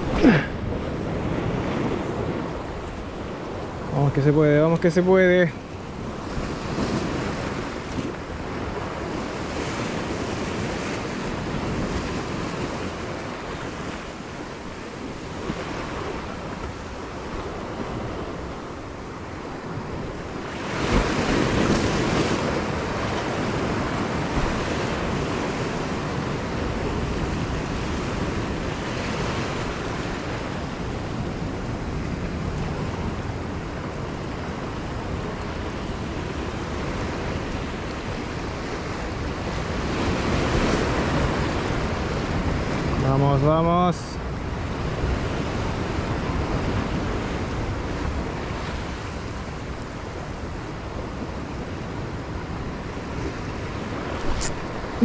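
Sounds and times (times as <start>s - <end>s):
wind buffeting microphone: 0.0s - 4.7s
waves breaking on rocks: 0.0s - 55.0s.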